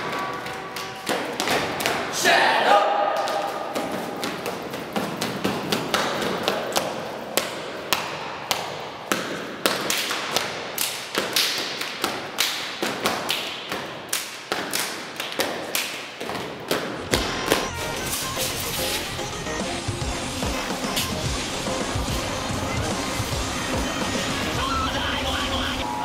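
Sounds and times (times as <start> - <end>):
stomps and hand hits echoing: 0.0 - 2.2, 3.0 - 18.3.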